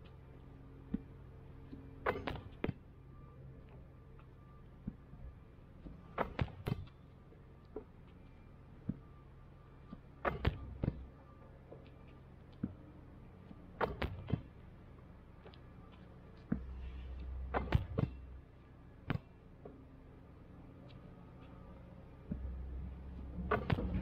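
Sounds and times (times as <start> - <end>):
basketball striking hoop: 17.5 - 18.2, 23.5 - 24.0.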